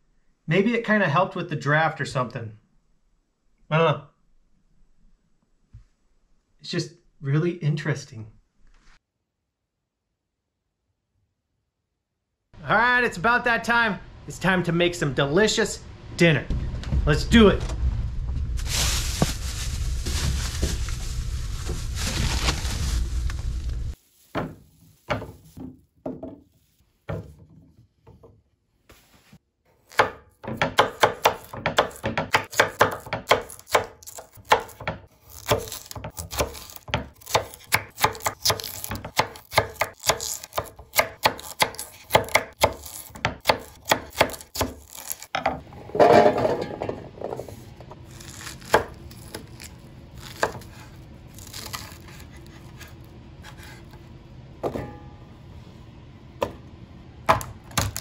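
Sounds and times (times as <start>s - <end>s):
knife chopping on wooden board: 29.9s - 45.2s, 50.3s - 50.8s.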